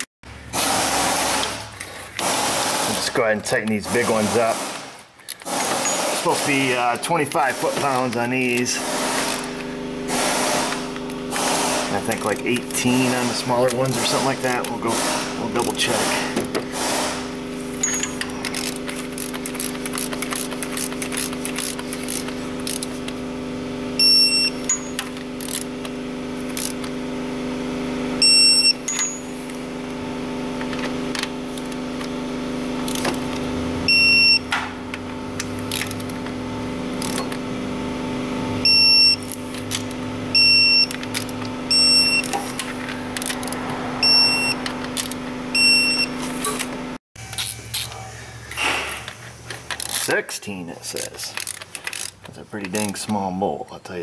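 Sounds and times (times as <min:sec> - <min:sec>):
torque wrench beeping: 0:05.3 - 0:16.2, 0:17.6 - 0:23.0, 0:24.0 - 0:25.9, 0:28.2 - 0:29.6, 0:33.8 - 0:34.6, 0:37.0 - 0:37.4, 0:38.6 - 0:46.6.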